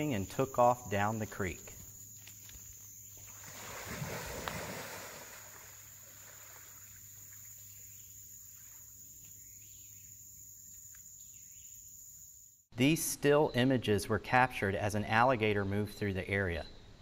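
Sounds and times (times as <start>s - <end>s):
insects trilling: 0.0s - 12.6s
alligator splashing through water: 3.2s - 9.0s.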